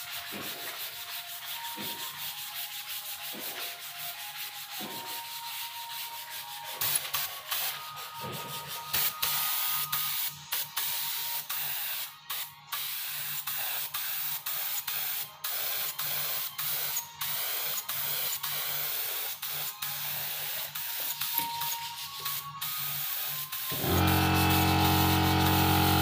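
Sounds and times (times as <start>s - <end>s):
spray gun hissing: 23.0s - 26.0s.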